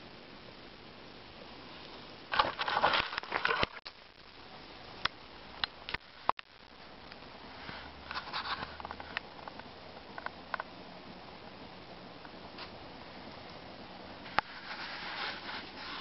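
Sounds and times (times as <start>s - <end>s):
dry leaves and twigs rustling: 2.3s - 3.8s.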